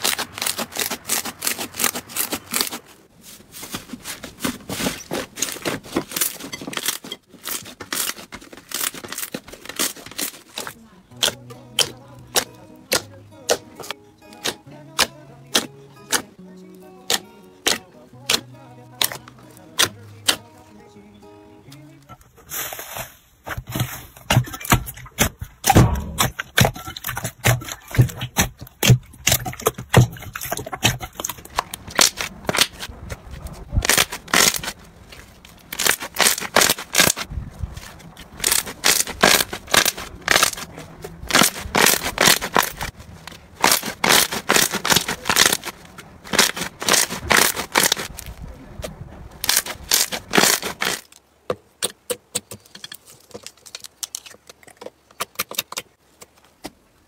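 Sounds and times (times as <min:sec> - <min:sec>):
slime crackling and popping: 0:33.7 - 0:34.8, 0:35.7 - 0:37.3, 0:38.4 - 0:43.0, 0:43.6 - 0:48.3, 0:49.4 - 0:51.1.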